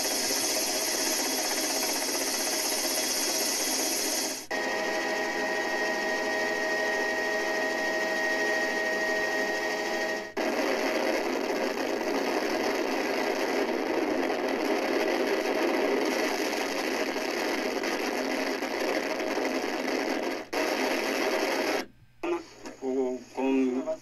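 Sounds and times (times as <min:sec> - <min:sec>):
helicopter rotor and engine noise: 0:00.0 - 0:12.6
helicopter turbine whine: 0:00.0 - 0:21.8.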